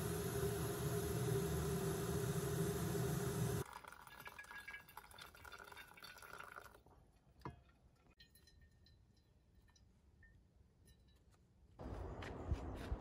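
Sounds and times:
hot water pouring: 0.0s - 6.9s.

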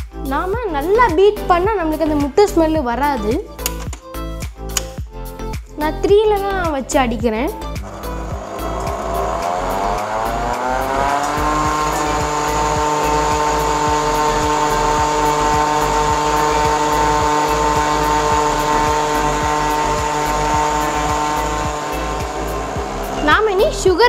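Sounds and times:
stand mixer motor whining: 7.8s - 23.8s.

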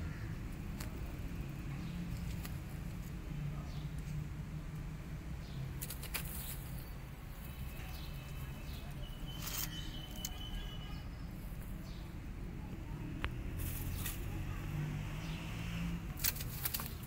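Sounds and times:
faint high chirps: 7.4s - 11.5s.

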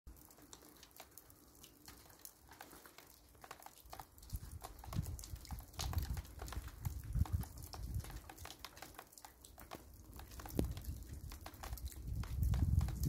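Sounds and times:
snow pattering softly: 0.1s - 13.0s.

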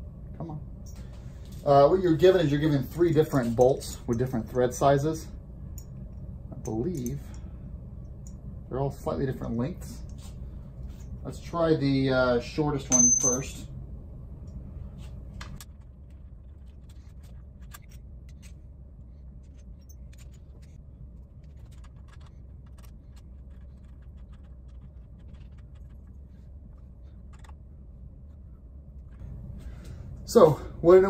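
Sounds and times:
steady low hum: 0.0s - 31.0s
allen key clicks and scrapes: 19.4s - 20.8s.

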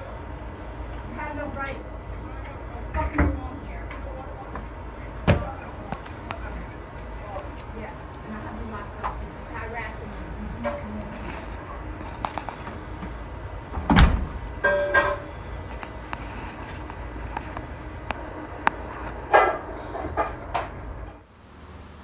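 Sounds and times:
steady low rumble: 0.0s - 21.7s
loud thump: 13.7s - 14.5s.

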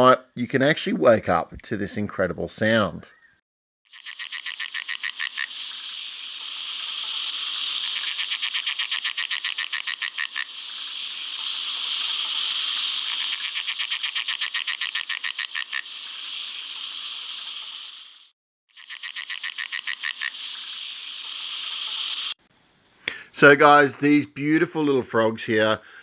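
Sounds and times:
tree frog buzzing: 3.9s - 22.4s
tree frog rattling trills: 3.9s - 22.4s.

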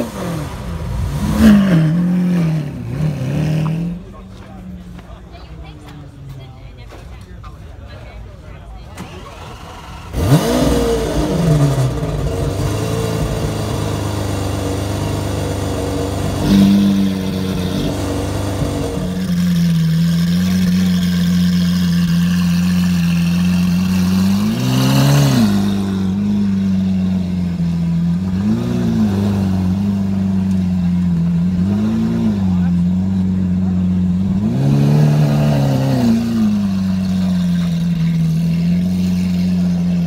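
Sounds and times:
car engine revving: 0.0s - 5.0s, 9.0s - 40.0s
car engine starting: 0.0s - 6.2s, 8.7s - 40.0s
car engine idling: 3.6s - 40.0s.

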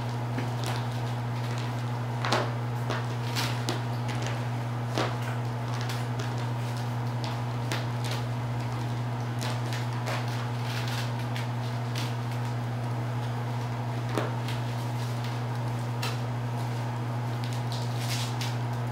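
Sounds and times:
steady low hum: 0.0s - 18.9s.

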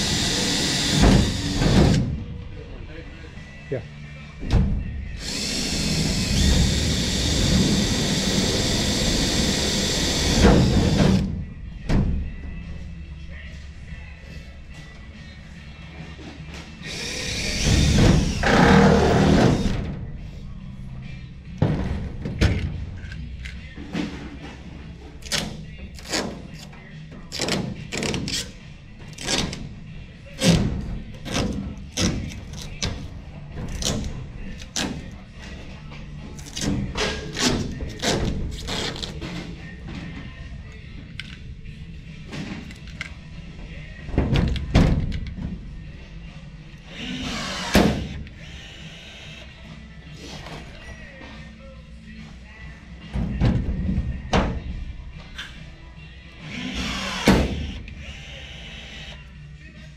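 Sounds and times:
cordless drill boring through metal: 0.0s - 1.7s, 5.2s - 11.0s, 46.9s - 49.4s, 56.4s - 59.2s
background music: 0.0s - 59.9s.

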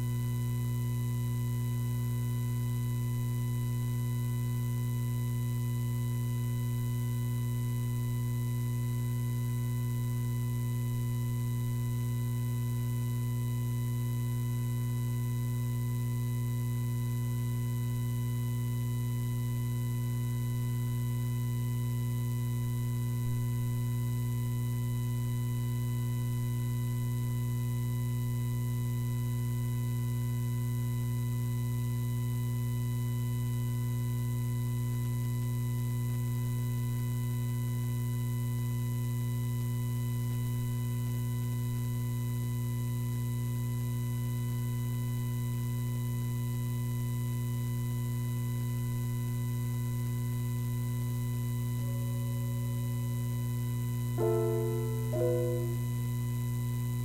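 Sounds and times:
electrical hum: 54.0s - 55.8s
faint high steady tones: 54.2s - 55.8s.

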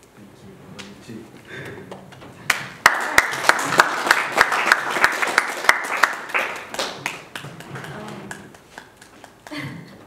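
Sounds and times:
congregation applauding: 2.5s - 9.6s.

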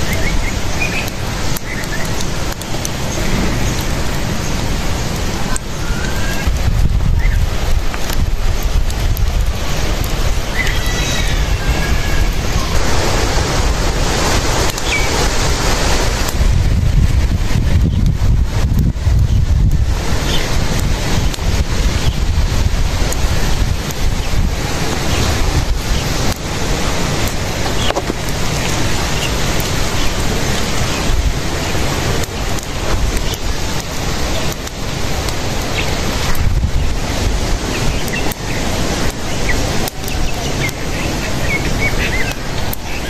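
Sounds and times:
sharp crackles: 0.0s - 43.0s
wind buffeting microphone: 0.0s - 43.0s.

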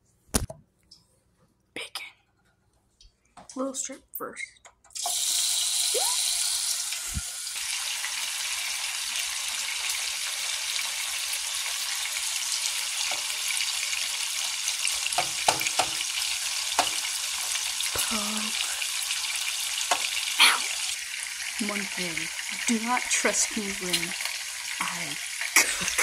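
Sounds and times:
sharp clicks and pops: 0.3s - 1.0s
bacon sizzling in a frying pan: 5.0s - 26.0s.

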